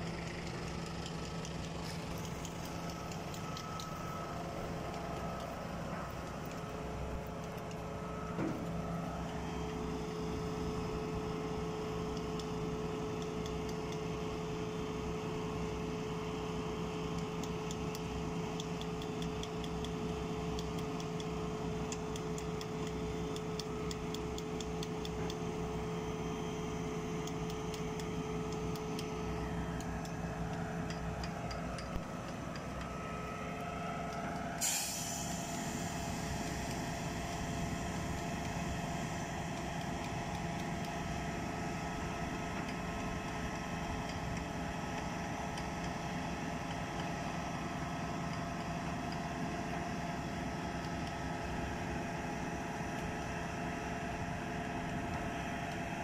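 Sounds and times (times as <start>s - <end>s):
concrete pump engine droning: 0.0s - 56.0s
sharp hiss: 34.6s - 36.8s.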